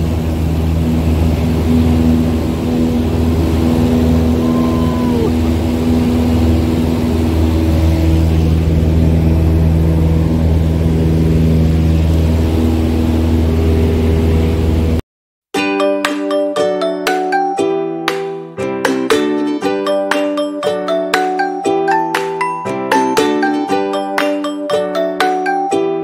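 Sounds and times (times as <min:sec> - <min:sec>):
light aircraft engine and propeller: 0:00.0 - 0:15.0.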